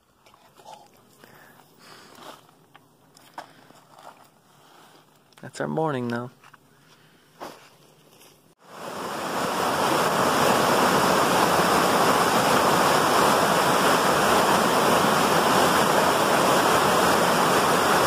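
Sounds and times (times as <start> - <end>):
brook rushing over rocks: 8.8 - 18.0.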